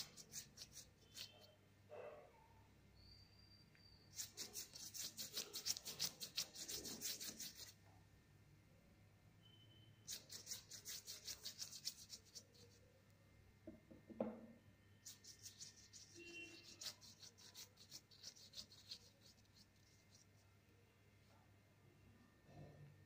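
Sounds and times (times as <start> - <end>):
paintbrush strokes: 0.0 - 1.6, 4.1 - 7.9, 10.0 - 12.9, 15.0 - 20.5.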